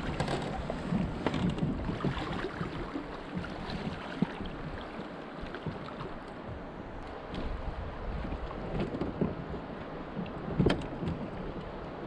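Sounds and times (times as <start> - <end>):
river water flowing: 0.0 - 10.5
water splashing and sloshing: 0.0 - 12.0.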